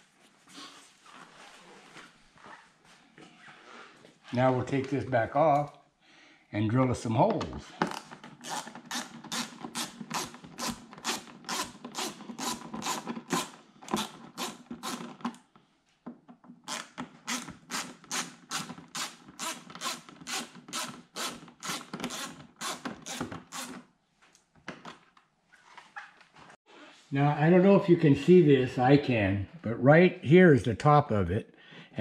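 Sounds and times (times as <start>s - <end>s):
screwdriver rasping on screws: 7.9s - 15.3s, 16.7s - 23.8s.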